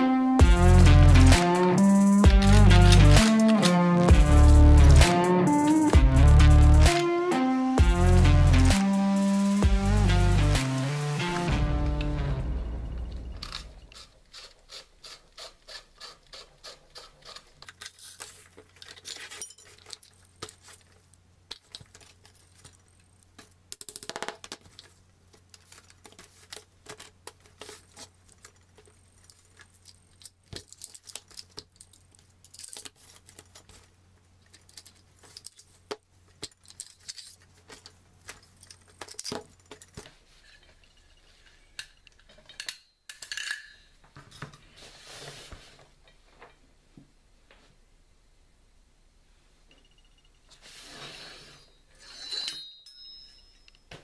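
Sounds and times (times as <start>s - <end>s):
shotgun metal parts clicking: 2.8s - 3.8s, 17.2s - 40.1s, 41.8s - 43.9s.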